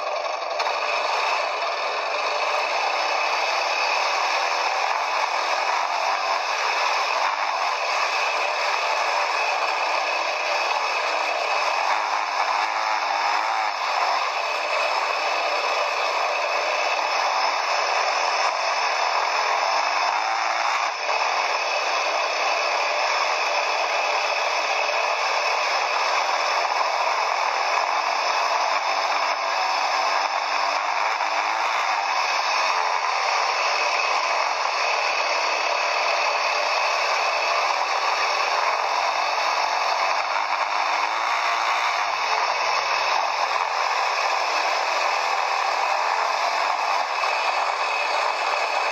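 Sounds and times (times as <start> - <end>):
quad bike engine: 0.0 - 48.9
quad bike rattling rush: 0.0 - 48.9.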